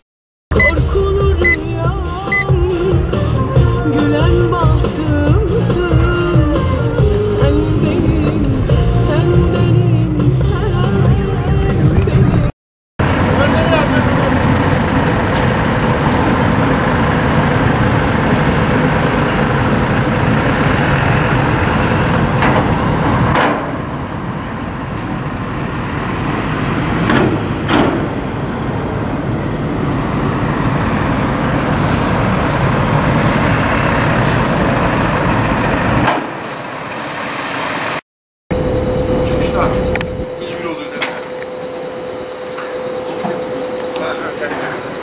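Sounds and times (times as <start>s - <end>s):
bus engines idling: 0.5s - 45.0s
air brake hisses: 31.8s - 34.5s.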